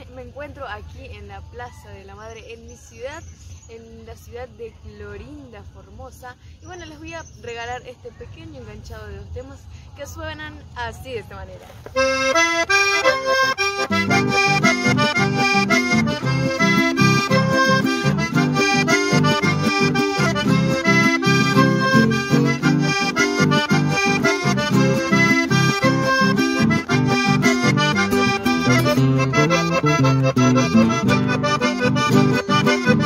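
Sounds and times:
button accordion playing lively tune: 0:12.0 - 0:33.0.

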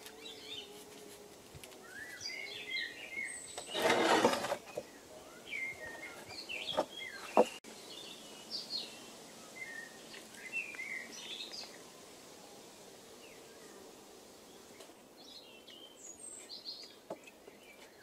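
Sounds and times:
rustle: 0:00.0 - 0:18.0
songbirds chirping: 0:00.0 - 0:18.0.

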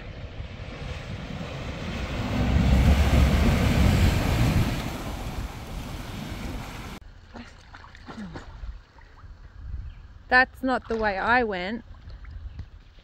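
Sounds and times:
low engine rumble: 0:00.0 - 0:07.0
wind buffeting microphone: 0:00.0 - 0:07.0, 0:08.5 - 0:10.3, 0:11.8 - 0:13.0
water splashing around wheels: 0:00.0 - 0:09.2.

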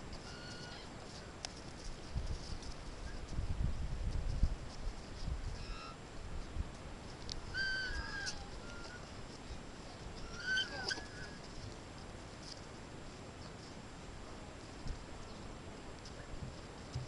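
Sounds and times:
young emus chirping whistles: 0:05.6 - 0:06.0, 0:07.5 - 0:09.0.

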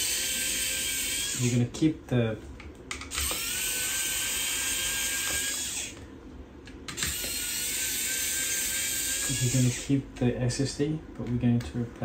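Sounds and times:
electric screwdriver whining: 0:00.0 - 0:01.6, 0:03.1 - 0:06.0, 0:06.9 - 0:09.9.

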